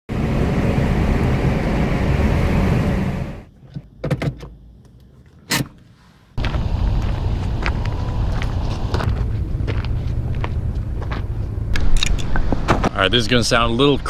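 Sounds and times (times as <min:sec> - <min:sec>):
steady noise: 0:00.1 - 0:03.5
car road noise: 0:00.1 - 0:05.8, 0:06.4 - 0:14.0.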